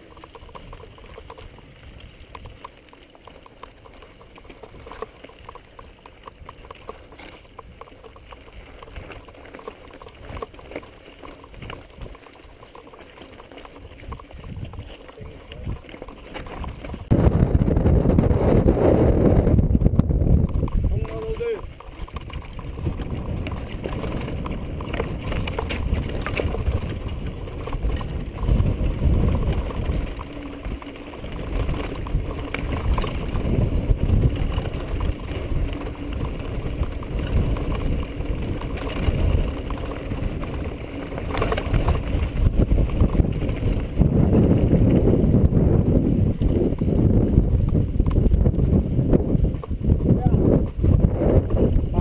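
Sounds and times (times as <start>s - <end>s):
bike rattling over bumps: 0.0s - 52.0s
tyres crunching on dirt: 0.0s - 52.0s
wind buffeting microphone: 13.7s - 52.0s.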